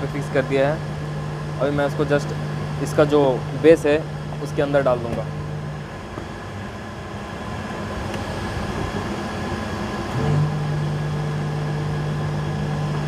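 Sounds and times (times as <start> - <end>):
air conditioning machinery drone: 0.0 - 13.0
low hum: 0.0 - 13.0.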